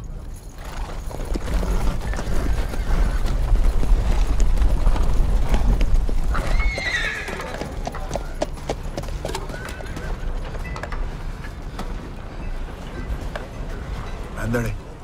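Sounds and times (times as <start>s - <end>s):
horse hooves clopping: 0.0s - 15.0s
horse whinnying: 6.3s - 7.8s.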